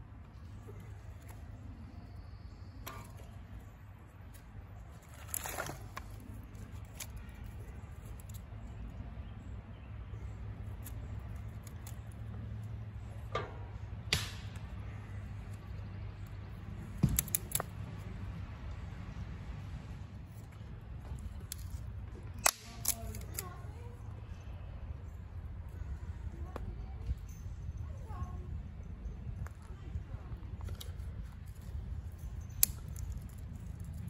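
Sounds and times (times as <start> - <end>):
low background rumble: 0.0 - 34.0
kindling sticks knocking and snapping: 13.3 - 18.0, 21.1 - 23.5.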